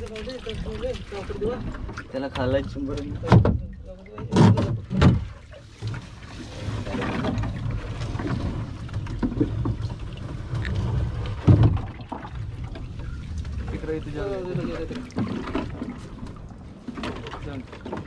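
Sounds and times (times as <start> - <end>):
dull knocks in wooden boat: 1.8 - 3.6, 4.2 - 5.4, 11.4 - 12.3.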